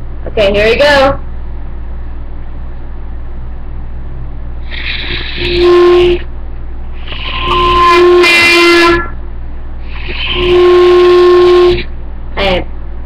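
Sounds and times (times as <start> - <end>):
shrill clarinet squeak: 4.7 - 6.2, 7.1 - 9.1
clarinet note: 4.7 - 6.3, 7.0 - 9.2, 9.9 - 11.9.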